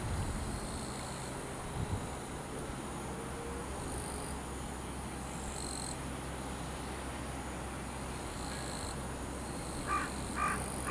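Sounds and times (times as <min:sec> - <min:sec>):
faint high insect buzz: 0:00.0 - 0:10.9
low wind rumble: 0:00.0 - 0:10.9
bird call: 0:09.8 - 0:10.9.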